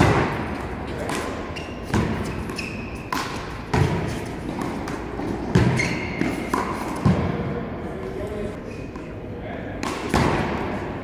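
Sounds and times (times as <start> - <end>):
sneaker squeaks on court: 0.9 - 4.7, 5.4 - 7.2.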